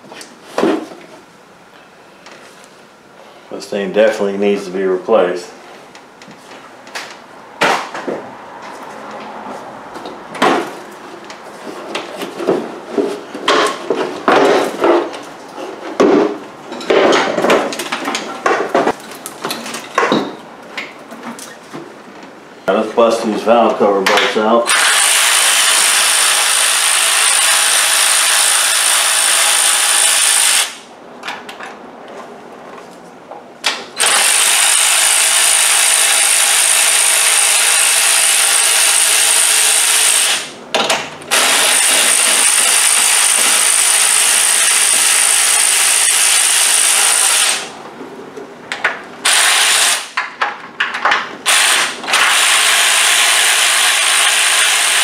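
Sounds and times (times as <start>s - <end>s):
power ratchet spinning bolts: 24.7s - 30.8s, 34.0s - 40.4s, 41.3s - 47.7s, 49.2s - 50.2s, 51.5s - 55.0s.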